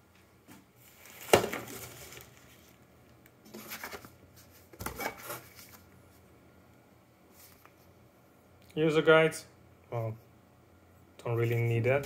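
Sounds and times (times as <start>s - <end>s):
cardboard packaging rustling: 0.8s - 2.8s, 3.5s - 5.9s.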